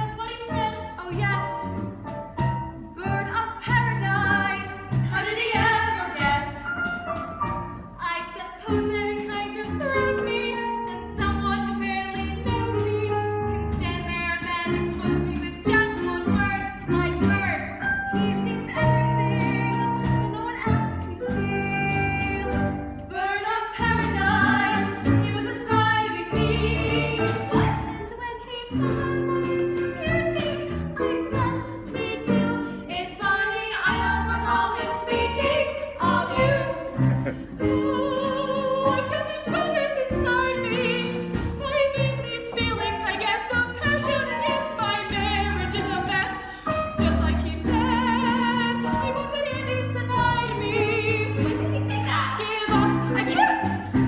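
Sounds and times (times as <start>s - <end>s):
instrumental accompaniment: 0.0s - 54.0s
women singing operatic style: 3.0s - 6.7s, 8.0s - 37.0s, 37.6s - 54.0s.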